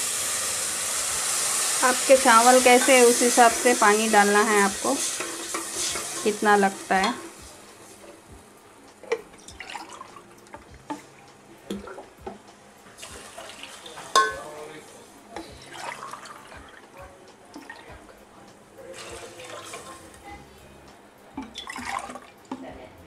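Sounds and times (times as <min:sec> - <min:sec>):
water splashing into pot: 0:09.1 - 0:10.2, 0:13.0 - 0:14.6, 0:15.6 - 0:16.9, 0:19.0 - 0:20.0, 0:21.4 - 0:22.6
spoon stirring pot: 0:13.6 - 0:14.4.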